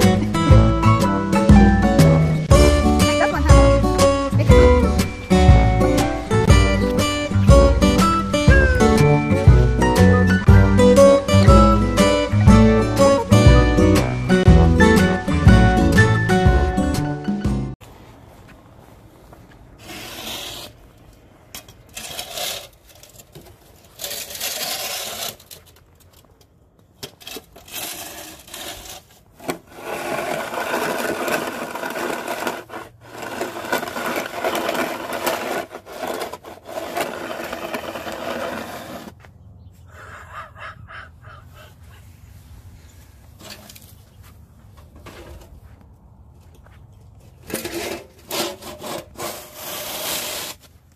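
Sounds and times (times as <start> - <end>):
snow shovel scraping pavement: 2.5 - 15.7, 19.2 - 21.0, 21.8 - 25.7, 27.1 - 39.2, 47.4 - 50.9.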